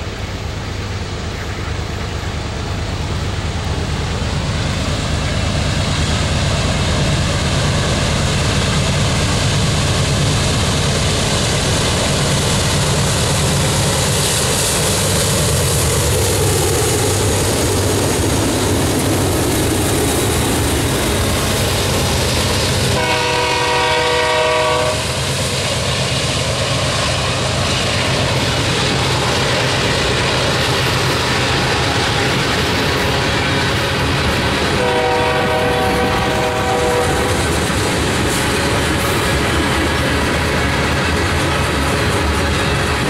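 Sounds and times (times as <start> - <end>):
diesel locomotive engine drone: 0.0 - 43.0
train horn blast: 22.9 - 25.2, 34.7 - 37.4.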